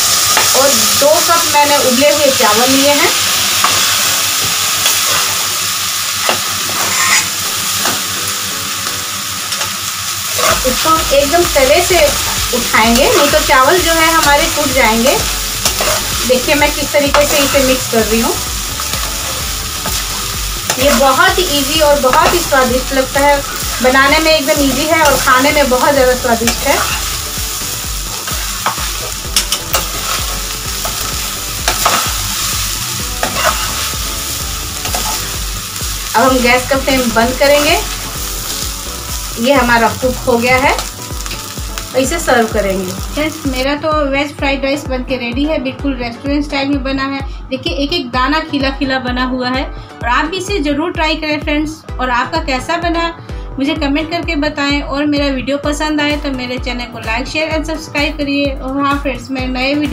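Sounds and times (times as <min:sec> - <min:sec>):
rice sizzling in pan: 0:00.0 - 0:43.7
metal spoon scraping a pan: 0:06.2 - 0:07.9, 0:10.3 - 0:10.8, 0:15.6 - 0:16.2, 0:26.4 - 0:27.2, 0:28.1 - 0:32.6, 0:33.2 - 0:34.0, 0:34.8 - 0:35.3
steel ladle scraping pan: 0:06.7 - 0:07.4, 0:10.4 - 0:10.7, 0:33.2 - 0:33.9.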